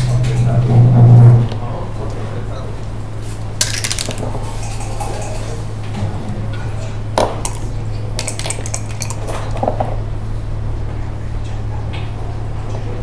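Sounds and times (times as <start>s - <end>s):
steady low hum: 0.0s - 13.0s
game checkers clicking: 3.6s - 4.3s, 7.4s - 9.3s.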